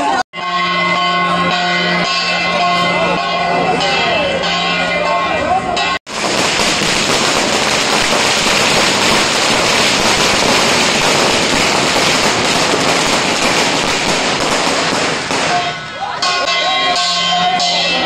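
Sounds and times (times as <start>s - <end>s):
firecrackers bursting: 6.1s - 16.0s.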